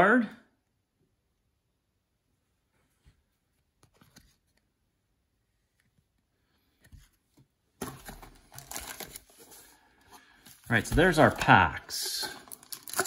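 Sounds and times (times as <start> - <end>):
foil packs rustling and crinkling: 7.8 - 13.0.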